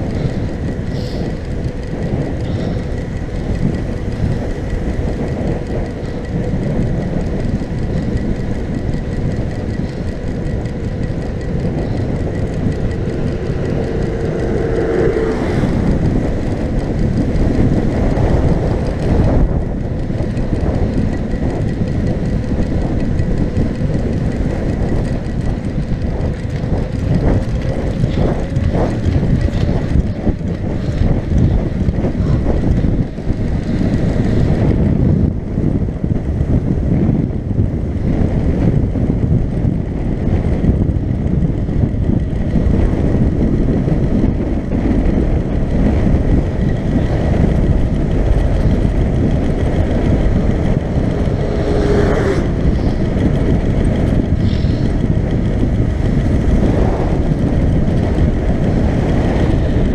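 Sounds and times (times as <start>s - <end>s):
bike frame rattling: 0.0s - 59.9s
bike rolling on dirt road: 0.0s - 59.9s
wind buffeting microphone: 0.0s - 59.9s
steady tone: 7.8s - 26.0s, 48.4s - 58.6s.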